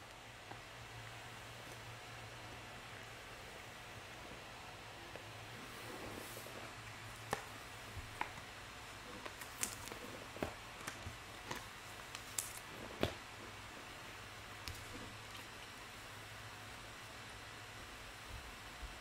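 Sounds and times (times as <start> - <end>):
trading cards clicking and flicking: 9.2 - 13.2.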